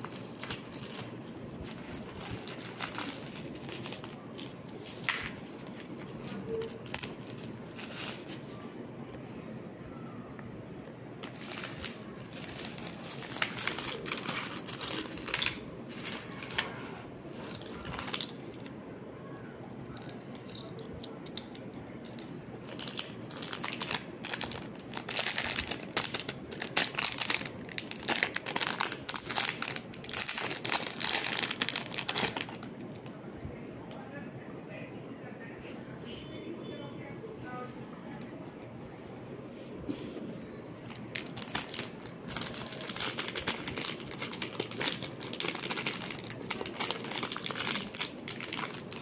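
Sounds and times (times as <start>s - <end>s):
plastic packaging crinkling: 0.0s - 8.8s, 11.1s - 18.7s, 21.3s - 33.2s, 40.7s - 49.0s.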